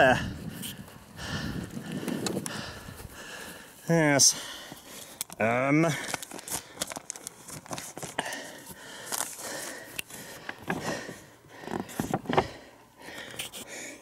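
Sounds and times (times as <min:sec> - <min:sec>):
footsteps on grass: 0:02.6 - 0:05.1.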